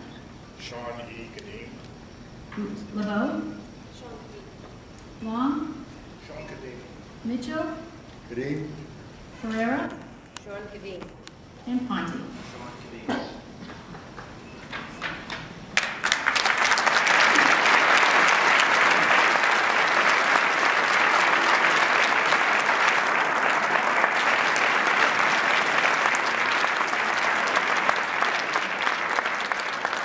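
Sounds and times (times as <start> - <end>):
crowd applauding: 13.6 - 30.0.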